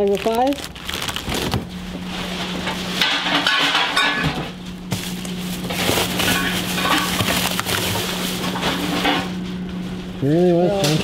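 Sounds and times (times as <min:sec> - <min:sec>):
plastic bag rustling and crinkling: 0:00.0 - 0:03.0, 0:04.7 - 0:09.1
steady low hum: 0:00.0 - 0:11.0.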